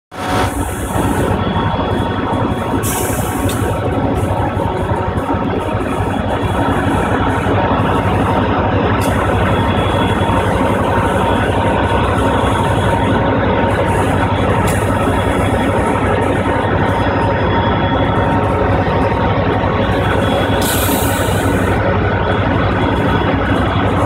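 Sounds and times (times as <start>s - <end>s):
diesel locomotives idling: 0.2s - 24.0s.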